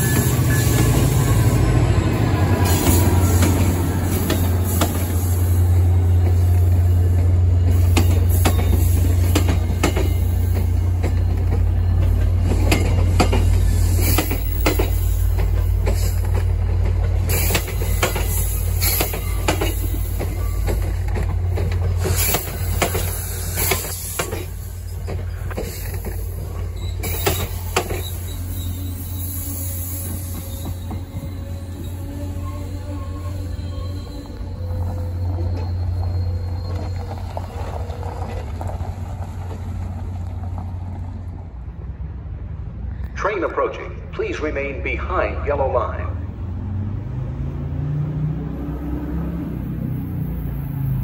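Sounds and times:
locomotive engine rumble: 0:00.0 - 0:51.0
train wheels clicking over rail joints: 0:02.5 - 0:32.0.

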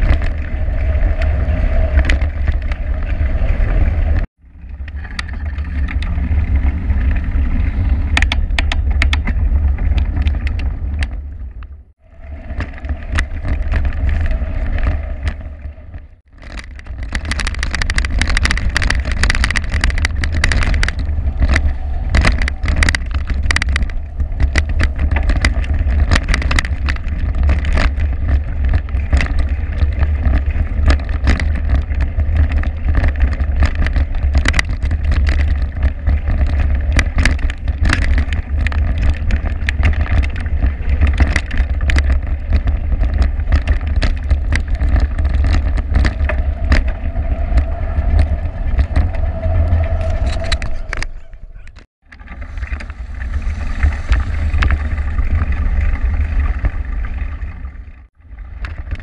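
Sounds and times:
bicycle clicks and rattles: 0:00.0 - 0:59.0
wind and road rumble: 0:00.0 - 0:59.0.

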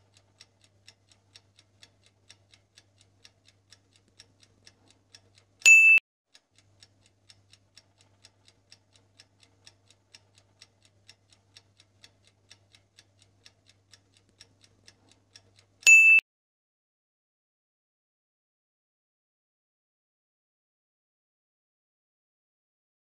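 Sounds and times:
clock ticking: 0:00.0 - 0:16.2
high electronic beep: 0:05.7 - 0:06.0, 0:15.9 - 0:16.2.

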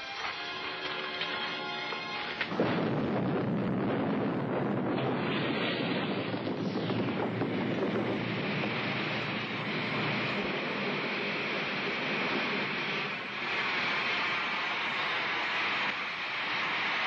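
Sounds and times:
oil well blowout roar: 0:02.4 - 0:17.0
sudden bang: 0:02.5 - 0:09.6.

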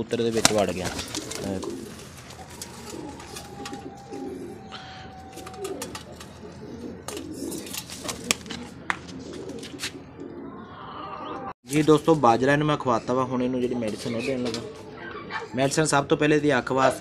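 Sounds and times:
pigeons cooing: 0:00.4 - 0:11.6, 0:13.9 - 0:15.9.

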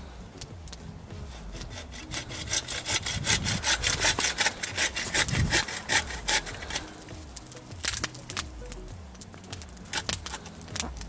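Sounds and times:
hand saw cutting wood: 0:01.1 - 0:08.0.

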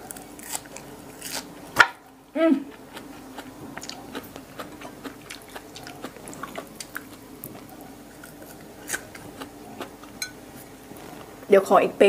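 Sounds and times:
wet chewing and lip-smacking: 0:02.7 - 0:10.2.

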